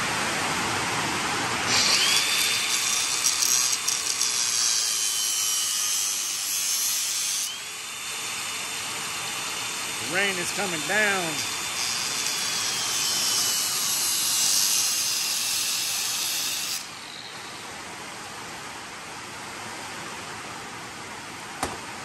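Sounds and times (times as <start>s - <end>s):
louder higher hiss: 0.0s - 19.0s
rain hissing: 7.6s - 11.7s.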